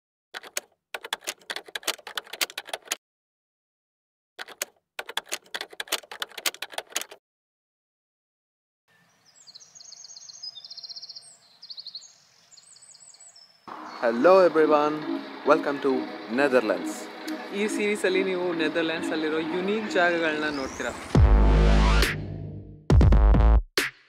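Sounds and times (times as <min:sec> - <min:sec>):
rapid keyboard key clicks: 0:00.4 - 0:03.0, 0:04.4 - 0:07.2
small birds chirping: 0:08.9 - 0:21.0.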